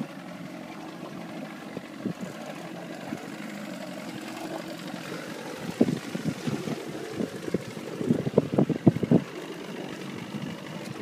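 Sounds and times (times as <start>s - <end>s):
boat low hum: 0.0s - 11.0s
wind on microphone: 5.6s - 9.4s.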